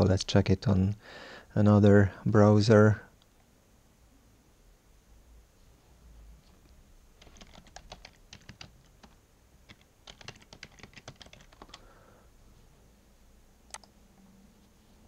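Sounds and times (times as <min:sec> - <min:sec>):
faint keyboard typing: 0:06.4 - 0:11.9, 0:13.7 - 0:14.0.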